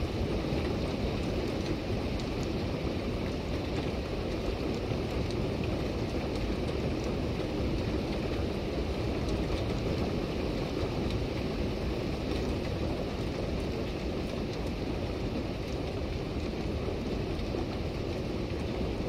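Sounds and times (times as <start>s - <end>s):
raindrop taps: 12.2s - 14.8s.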